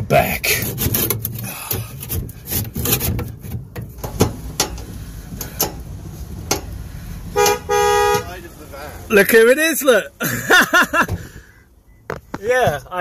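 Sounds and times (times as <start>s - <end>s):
car horn honking: 7.3s - 8.6s.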